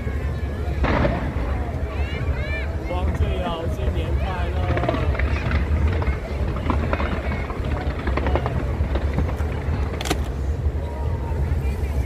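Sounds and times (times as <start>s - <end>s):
fireworks barrage of bangs: 0.7s - 12.0s
sharp firework crack: 0.8s - 10.8s.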